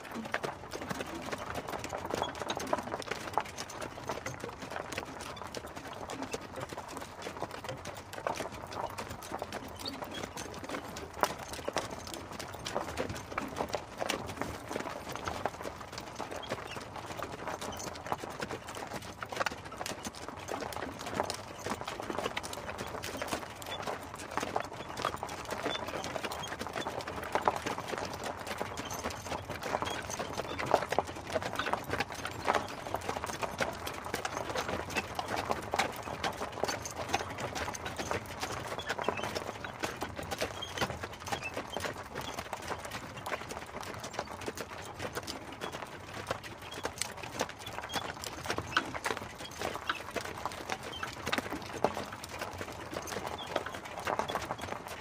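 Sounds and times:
horse hooves clip-clopping: 0.0 - 55.0.

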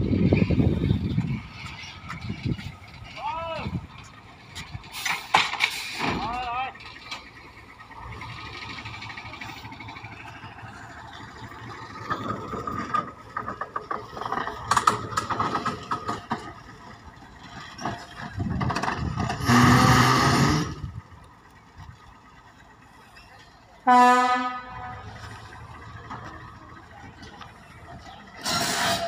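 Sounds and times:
diesel locomotive engine: 0.0 - 29.0
wheels clicking and clattering: 0.0 - 29.0
locomotive horn: 19.4 - 20.7, 23.8 - 25.3.

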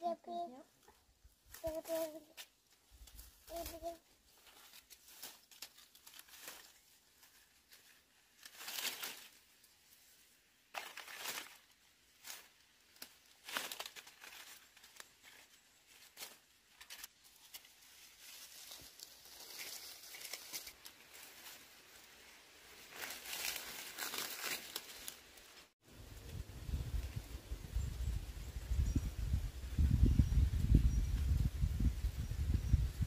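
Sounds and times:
rustling and crinkling: 0.8 - 25.8
loud tearing rustles: 22.9 - 25.2.

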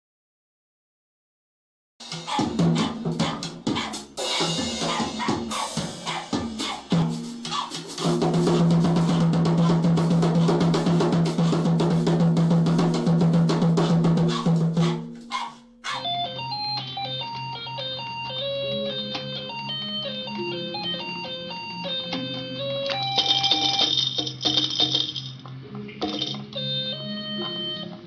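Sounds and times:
drum kit playing: 2.0 - 16.1.

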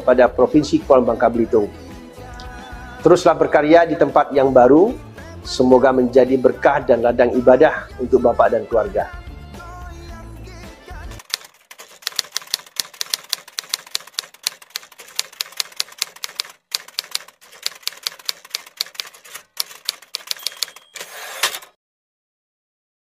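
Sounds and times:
typewriter keystroke clacks: 11.2 - 21.7
brief ringing tone: 20.3 - 21.5.

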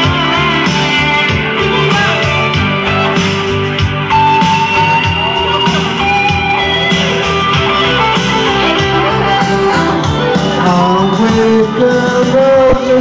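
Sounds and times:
loud amplified music with guitar: 0.0 - 13.0
people singing into microphones: 8.2 - 13.0.

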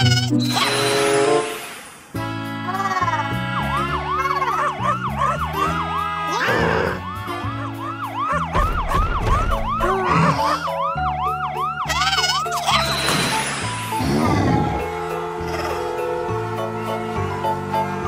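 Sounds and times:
cartoon police siren wail: 2.7 - 13.0.

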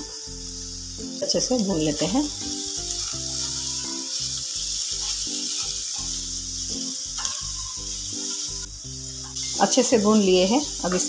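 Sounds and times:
vegetables sizzling in hot oil: 0.0 - 11.0
spatula stirring in pan: 2.5 - 11.0.

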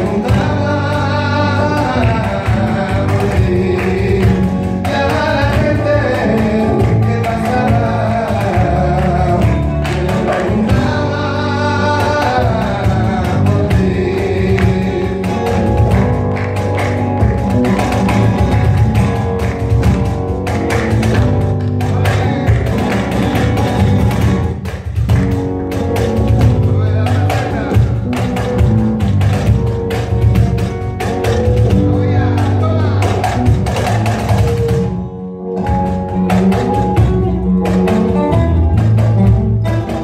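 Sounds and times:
man singing: 0.0 - 18.9, 21.1 - 24.2, 26.2 - 28.9, 31.3 - 40.0
bass: 0.0 - 40.0
cajon strikes: 0.0 - 40.0
flamenco guitar: 0.0 - 40.0.

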